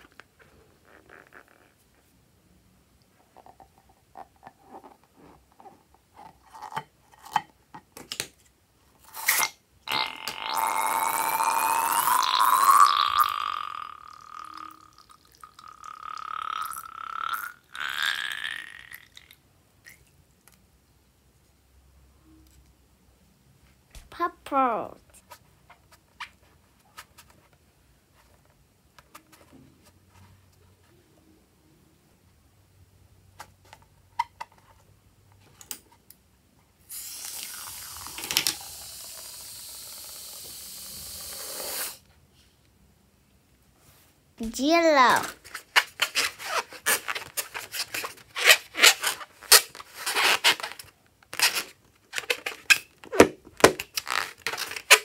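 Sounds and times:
balloon squealing through nozzle: 36.9s - 42.0s
foam spraying with a hiss: 36.9s - 42.0s.

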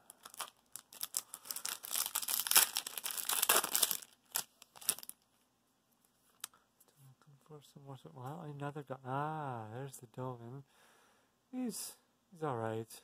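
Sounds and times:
card pack wrapper crinkling: 0.0s - 5.2s
wrapper tearing open: 0.1s - 5.2s.

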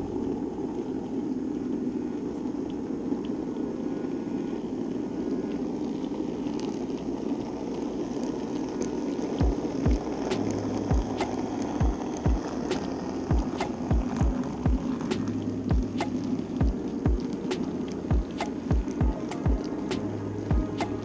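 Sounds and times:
model train whirring hum: 4.6s - 21.0s.

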